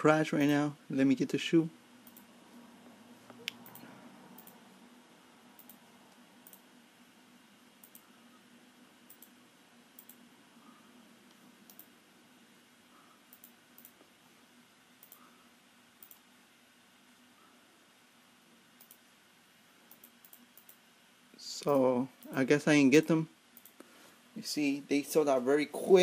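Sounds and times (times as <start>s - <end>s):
low steady hum: 0.0s - 26.0s
computer mouse clicks: 2.0s - 2.3s, 3.3s - 4.6s, 5.6s - 5.8s, 6.4s - 6.7s, 7.8s - 8.1s, 9.1s - 9.4s, 10.0s - 10.2s, 11.3s - 11.9s, 13.3s - 14.1s, 15.0s - 15.3s, 16.0s - 16.3s, 18.8s - 19.0s, 19.9s - 20.8s, 23.6s - 23.9s.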